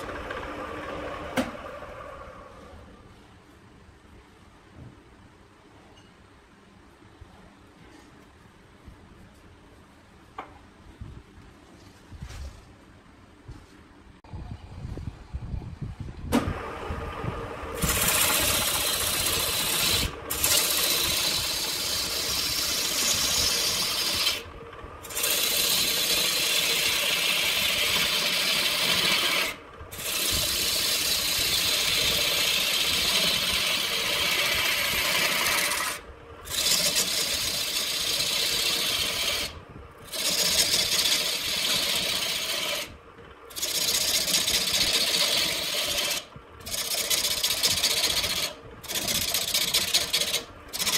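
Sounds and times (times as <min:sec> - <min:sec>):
lathe tool scraping wood: 0:00.0 - 0:02.4, 0:17.7 - 0:50.9
wood lathe running: 0:00.0 - 0:02.7, 0:16.5 - 0:50.9.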